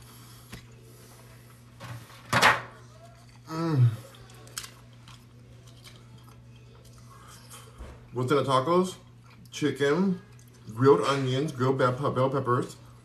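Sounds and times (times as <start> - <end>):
person humming mm: 3.4 - 4.2.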